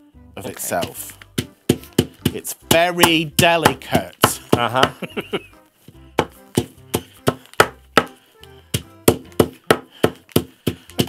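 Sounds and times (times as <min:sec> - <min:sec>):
wooden mallet knocking on table: 0:06.2 - 0:08.1, 0:08.8 - 0:10.5.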